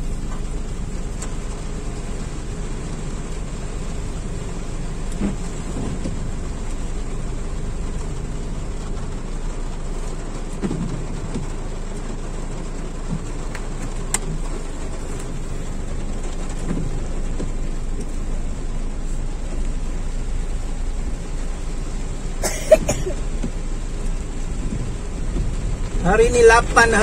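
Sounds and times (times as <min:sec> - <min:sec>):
engine humming: 0:00.0 - 0:27.0
heavy rain on car roof: 0:00.0 - 0:27.0
light ticks: 0:01.1 - 0:02.2, 0:13.1 - 0:15.4.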